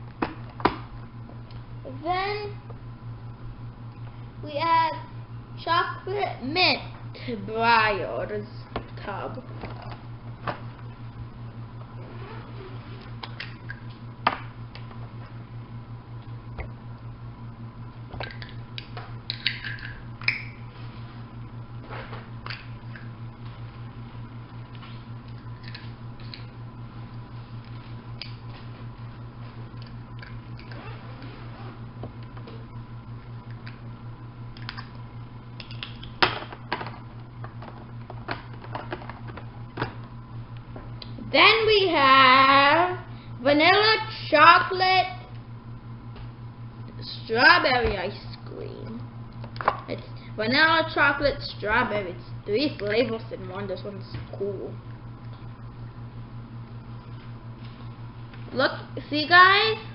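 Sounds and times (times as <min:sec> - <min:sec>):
low hum: 0:00.0 - 0:59.9.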